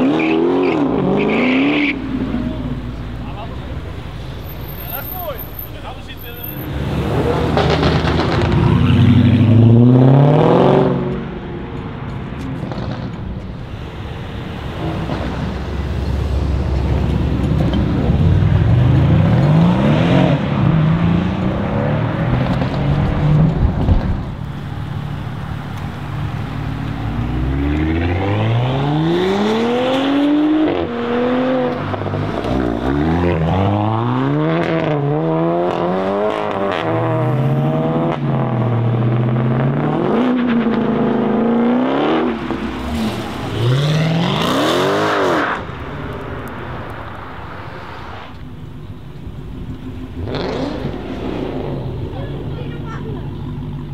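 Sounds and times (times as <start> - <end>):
cars accelerating hard: 0.0 - 11.4, 12.0 - 53.9
exhaust cracks: 7.2 - 9.4.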